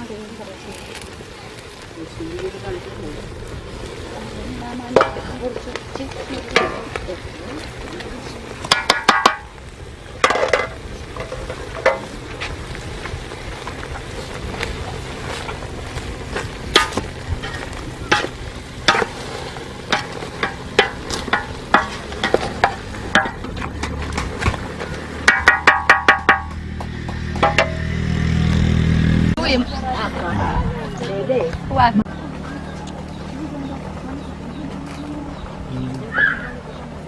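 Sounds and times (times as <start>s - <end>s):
frying sizzle: 0.0s - 29.6s.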